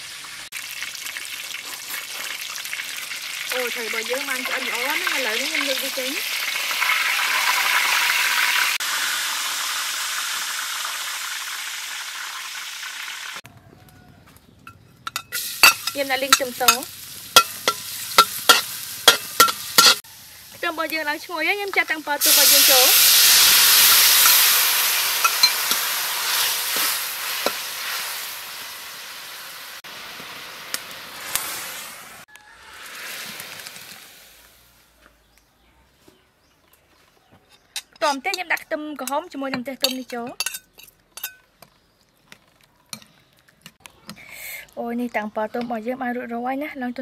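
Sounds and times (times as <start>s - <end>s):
fish sizzling in hot oil: 0.0s - 13.4s, 15.4s - 34.8s
spatula tapping wok: 15.1s - 20.0s.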